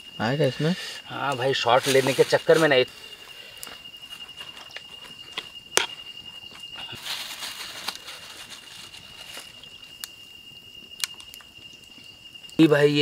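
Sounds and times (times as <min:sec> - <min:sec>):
cricket chirring: 0:00.0 - 0:13.0
soft rustles: 0:06.9 - 0:09.6.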